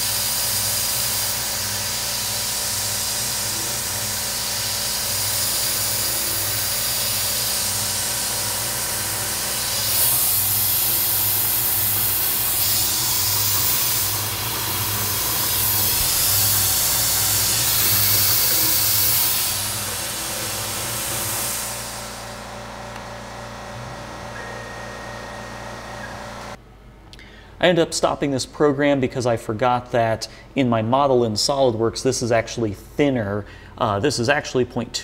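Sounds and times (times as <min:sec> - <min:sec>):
mist coolant spray hissing: 0:00.0 - 0:22.9
milling machine cutting steel: 0:00.0 - 0:26.6.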